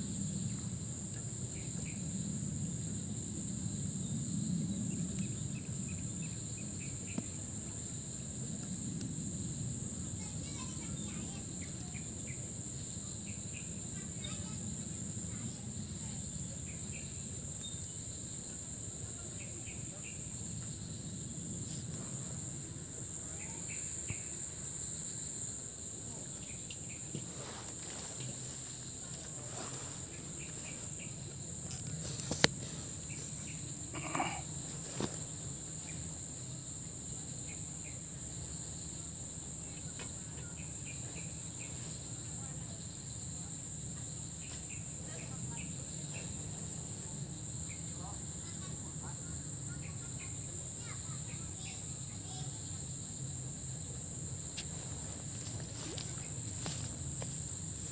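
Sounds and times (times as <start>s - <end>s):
insects droning: 0.0s - 57.9s.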